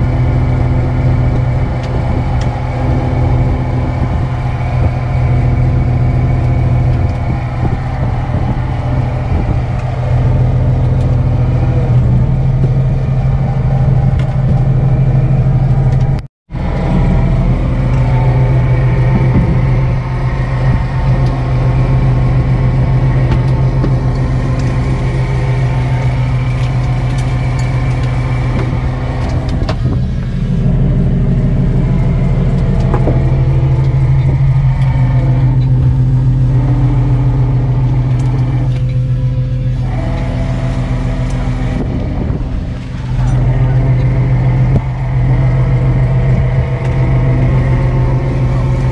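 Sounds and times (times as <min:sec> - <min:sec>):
boat engine droning: 0:00.0 - 0:48.9.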